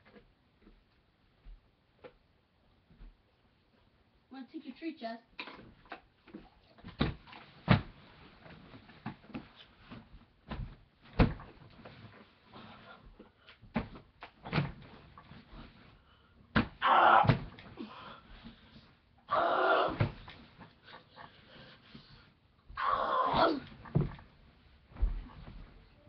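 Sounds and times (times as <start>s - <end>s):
thumps and knocks: 6.3s - 11.9s, 16.5s - 17.7s, 23.6s - 25.8s.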